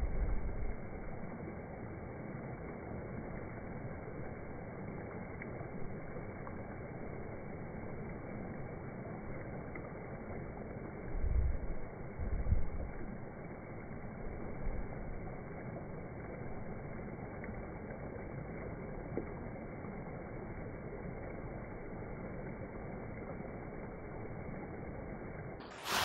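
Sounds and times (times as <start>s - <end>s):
low rumble bursts: 0.0s - 1.5s, 10.9s - 13.3s
waterfall rushing: 25.6s - 26.0s.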